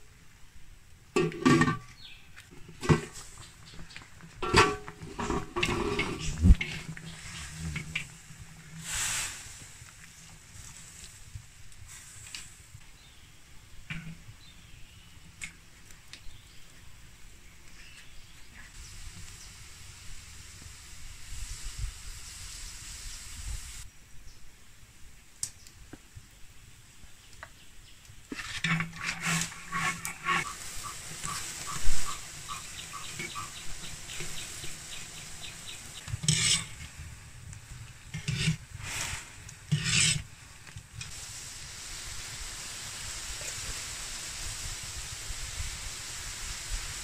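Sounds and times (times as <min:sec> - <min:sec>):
syrup bubbling and sizzling: 0:01.2 - 0:12.4, 0:28.3 - 0:47.0
chopsticks scraping a wok: 0:04.4 - 0:08.1, 0:28.3 - 0:34.8, 0:36.0 - 0:36.9, 0:38.1 - 0:40.3.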